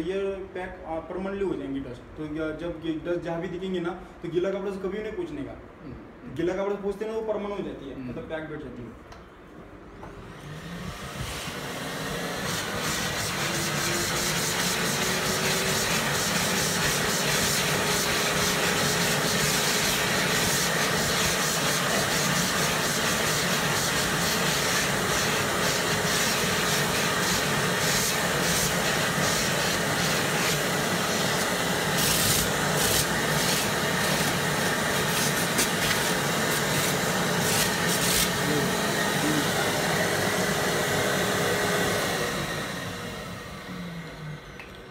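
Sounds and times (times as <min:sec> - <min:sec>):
vacuum cleaner whining: 0:10.0 - 0:44.7.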